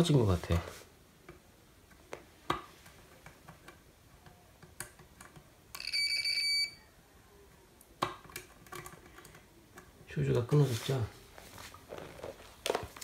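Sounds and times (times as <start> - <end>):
multimeter continuity beep: 5.8 - 6.9.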